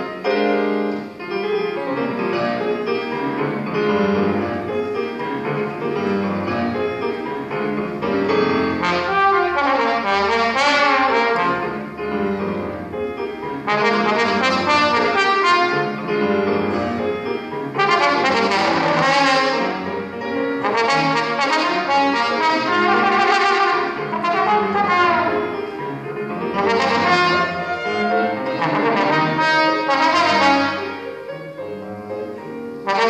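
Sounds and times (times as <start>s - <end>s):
piano accompaniment: 0.0s - 33.0s
trombone playing lively melody: 8.4s - 12.0s, 13.6s - 25.6s, 26.4s - 31.1s.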